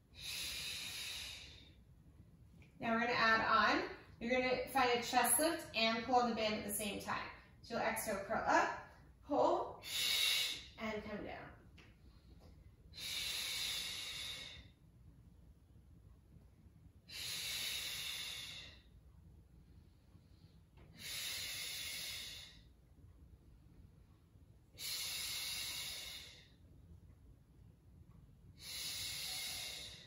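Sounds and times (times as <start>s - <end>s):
woman exhaling forcefully: 9.8s - 10.7s, 13.0s - 14.6s, 17.1s - 18.8s, 21.0s - 22.6s, 24.8s - 26.4s, 28.6s - 30.0s.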